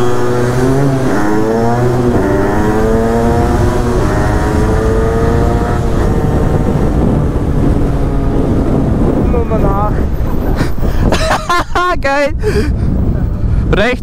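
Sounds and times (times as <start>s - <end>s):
moped engine accelerating: 0.0s - 10.9s
wind and road noise: 0.0s - 14.0s.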